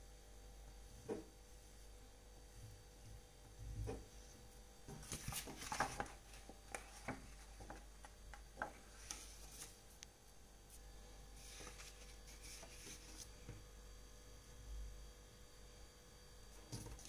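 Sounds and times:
faint steady hum: 0:00.0 - 0:17.0
brush tapping and scratching paper: 0:04.9 - 0:09.8, 0:11.4 - 0:13.6.

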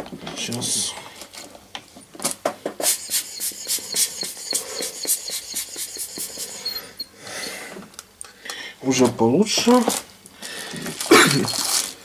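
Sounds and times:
short hissing air puffs: 0:02.8 - 0:07.6.

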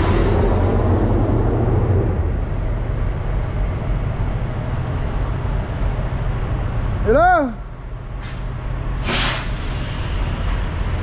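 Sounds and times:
rushing noise: 0:00.0 - 0:07.0.

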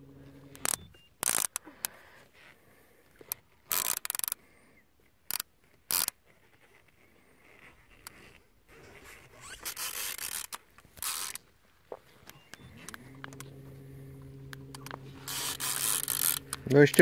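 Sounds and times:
fishing reel ratcheting: 0:00.5 - 0:02.0, 0:03.3 - 0:04.4, 0:05.3 - 0:06.2, 0:09.4 - 0:11.4, 0:12.6 - 0:17.0.

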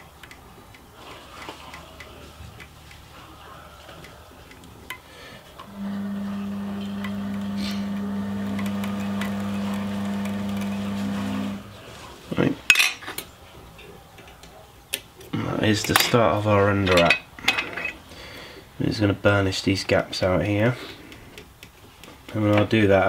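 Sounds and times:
electric motor humming: 0:05.6 - 0:11.8.

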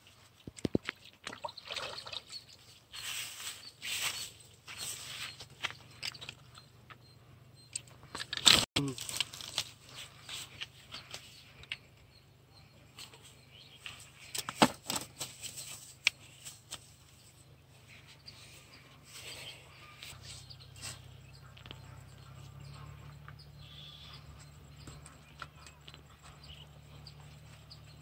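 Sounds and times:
fishing gear rustling and knocking: 0:00.0 - 0:07.0, 0:12.9 - 0:17.3.

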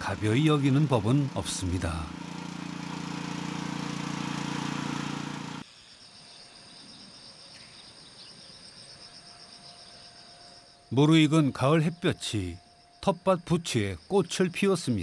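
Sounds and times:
small engine running: 0:00.0 - 0:05.6
insects trilling: 0:05.6 - 0:15.0.

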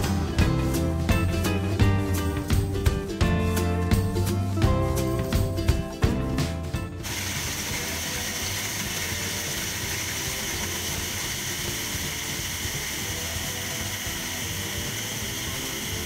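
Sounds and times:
background music: 0:00.0 - 0:16.0
electric food chopper crushing cookies: 0:07.0 - 0:16.0.

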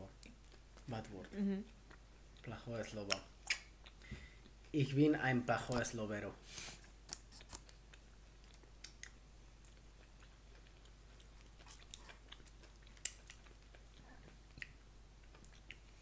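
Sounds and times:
people chewing: 0:06.6 - 0:16.0.

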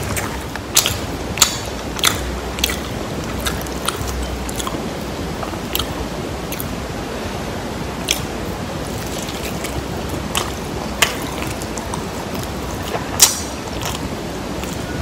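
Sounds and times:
crunchy chewing: 0:00.0 - 0:06.8, 0:08.0 - 0:15.0.

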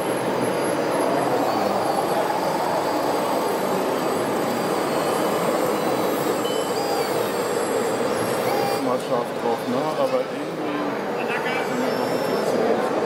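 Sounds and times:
model wheel loader running: 0:00.0 - 0:09.8.

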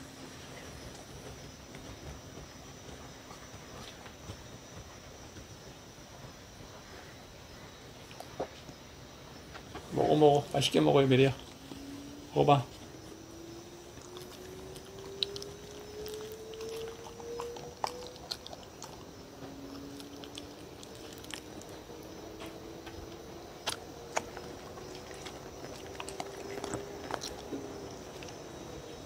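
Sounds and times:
faint rising hum: 0:00.0 - 0:29.0
dog chewing and licking: 0:09.7 - 0:29.0.

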